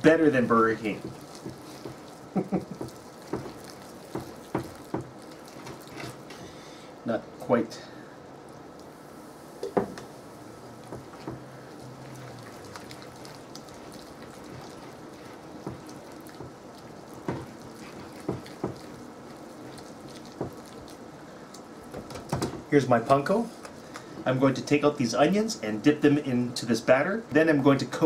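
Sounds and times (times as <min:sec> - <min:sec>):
whisk stirring batter: 0:00.0 - 0:06.3, 0:10.8 - 0:21.1
beer pouring: 0:00.0 - 0:28.0.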